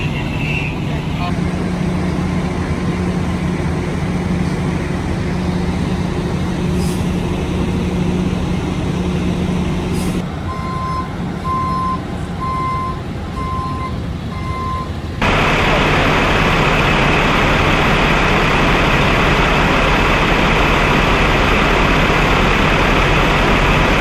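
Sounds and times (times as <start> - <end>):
heavy vehicle engine humming: 0.0 - 24.0
reversing alarm beeping: 10.5 - 24.0.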